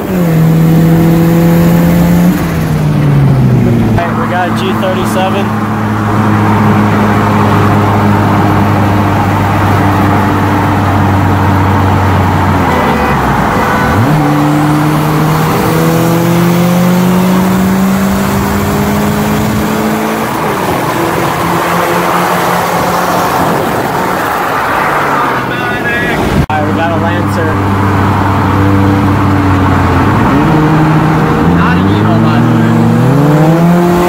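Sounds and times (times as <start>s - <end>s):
car engine accelerating: 0.0s - 25.6s, 26.2s - 34.0s
road and wind noise: 0.0s - 34.0s.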